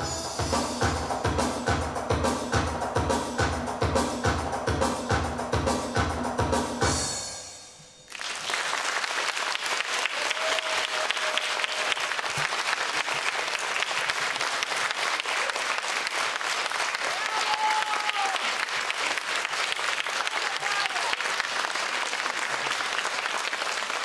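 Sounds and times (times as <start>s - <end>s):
drum-driven dance music: 0.0s - 7.5s
audience applause: 8.1s - 24.0s.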